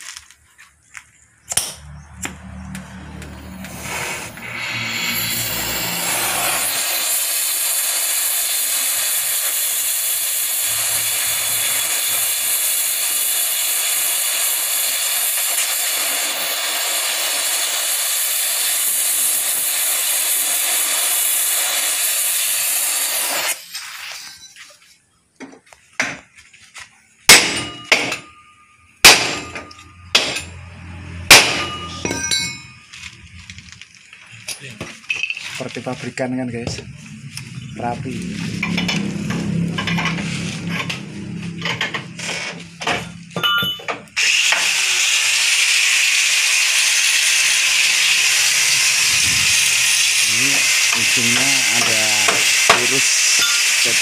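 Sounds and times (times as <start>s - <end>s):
torch flame hissing: 3.2s - 24.4s, 44.2s - 54.0s.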